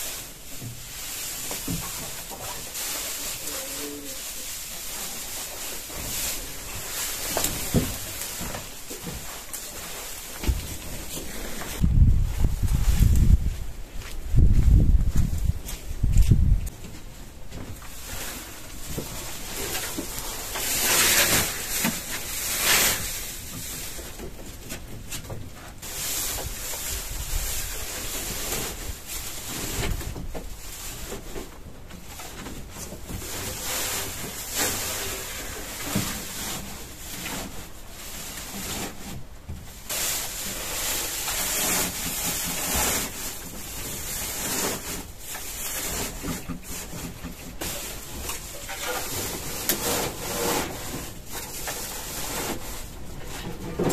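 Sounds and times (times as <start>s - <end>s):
dry hay rustling and crackling: 0.0s - 53.9s.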